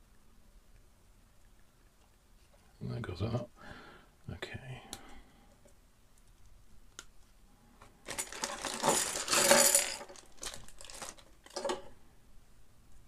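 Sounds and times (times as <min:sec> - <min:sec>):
plastic bag crinkling: 0:08.0 - 0:11.8
plastic pieces clattering on table: 0:08.1 - 0:11.9.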